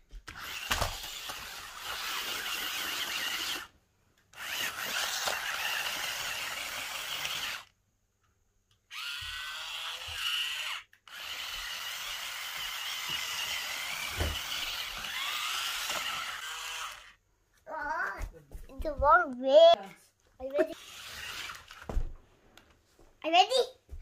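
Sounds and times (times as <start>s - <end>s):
rc car motors whining: 0.2s - 3.7s, 4.3s - 7.7s, 8.9s - 17.2s, 20.4s - 21.9s.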